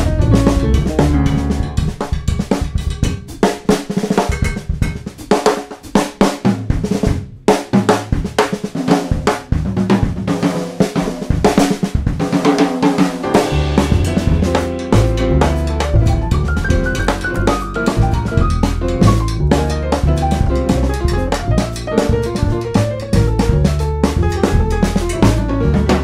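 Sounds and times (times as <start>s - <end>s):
upright bass: 0.0s - 3.2s, 13.2s - 26.0s
piano: 0.0s - 5.6s, 8.1s - 26.0s
drum kit soloing: 0.0s - 26.0s.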